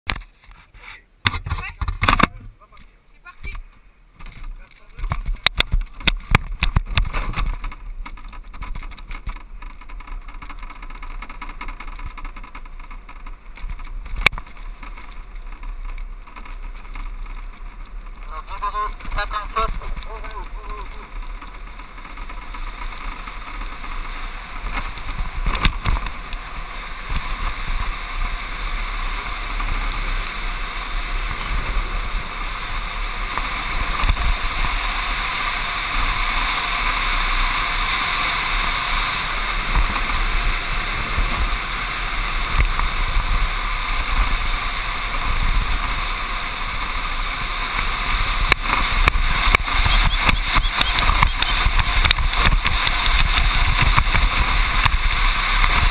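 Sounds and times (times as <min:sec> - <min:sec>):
wheels rumbling on tarmac: 0:00.0 - 0:55.9
knocks from road bumps: 0:03.6 - 0:28.1, 0:47.7 - 0:55.9.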